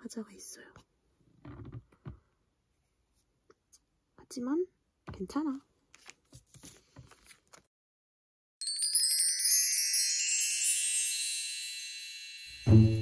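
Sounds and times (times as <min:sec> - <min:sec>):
photocards being handled: 0:05.9 - 0:07.7
shimmering chime: 0:08.6 - 0:13.0.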